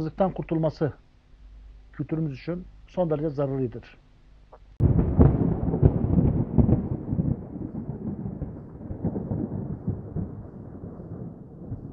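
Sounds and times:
deep crackling rumble: 4.6 - 11.9.

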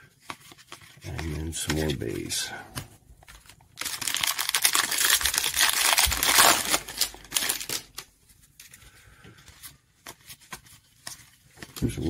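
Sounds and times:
foil wrapper tearing and crinkling: 3.3 - 8.1.

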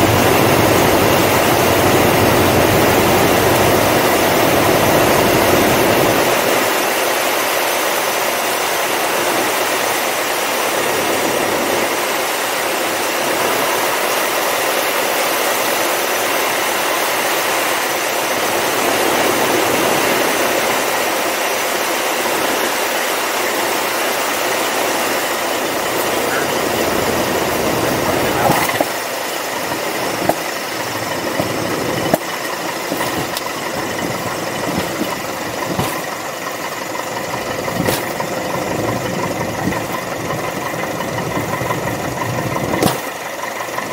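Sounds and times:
light aircraft piston engine: 0.0 - 43.9
cabin airflow noise: 24.6 - 43.9
wheels knocking on runway: 29.7 - 36.4.

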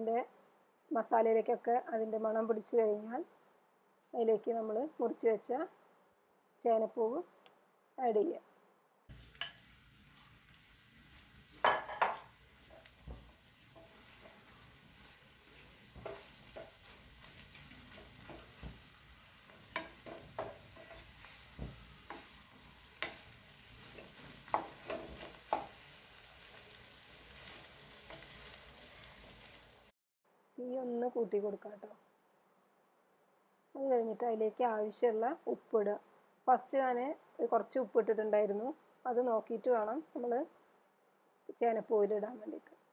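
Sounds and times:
spatula scraping a pan: 9.1 - 29.9
faint steady sizzle: 9.1 - 30.0.

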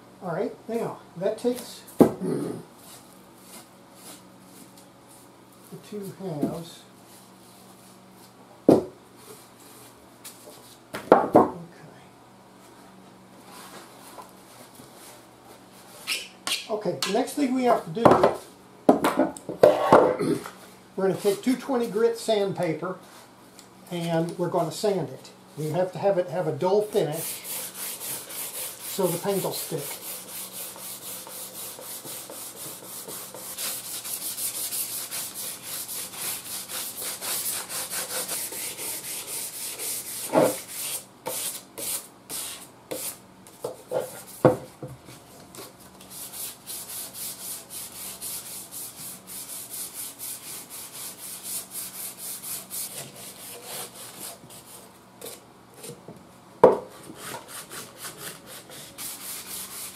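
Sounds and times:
sandpaper scraping strokes: 26.8 - 43.2, 46.1 - 55.4, 57.0 - 59.9.

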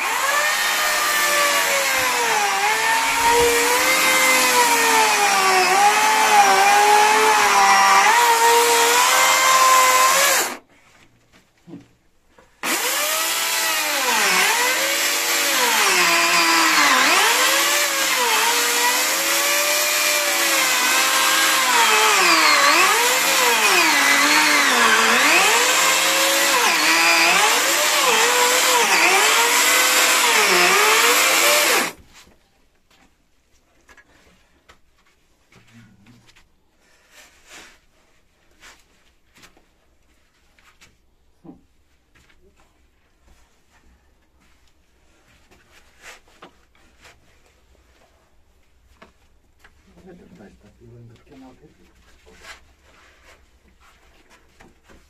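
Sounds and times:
electric chainsaw cutting soil: 0.0 - 10.6, 12.6 - 32.0.

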